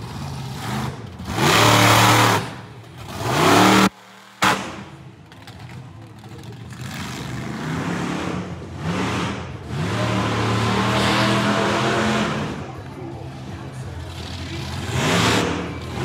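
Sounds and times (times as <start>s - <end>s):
monster truck engine revving: 0.0s - 16.0s.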